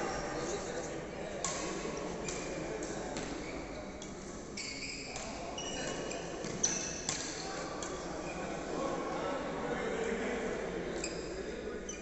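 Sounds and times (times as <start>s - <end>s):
echoing background chatter: 0.0s - 12.0s
shoes squeaking on sports floor: 4.6s - 7.3s.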